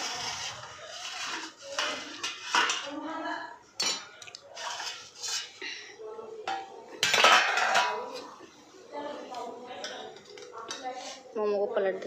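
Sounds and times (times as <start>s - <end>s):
metal pot lid clattering: 1.0s - 2.9s, 6.5s - 8.1s.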